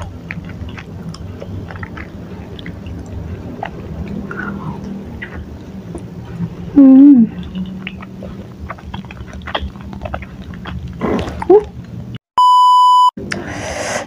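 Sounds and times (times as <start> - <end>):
close-up chewing: 0.0 - 12.2
wet mouth clicks: 7.4 - 12.0
steady test tone beep: 12.4 - 13.2.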